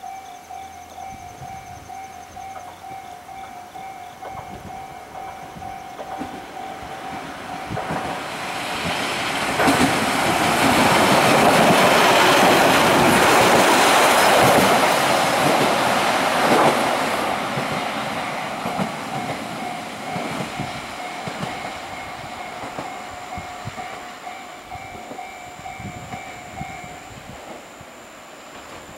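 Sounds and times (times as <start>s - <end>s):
level crossing bell ringing: 0.0s - 8.0s, 18.6s - 27.2s
diesel railcar passing: 0.0s - 28.9s.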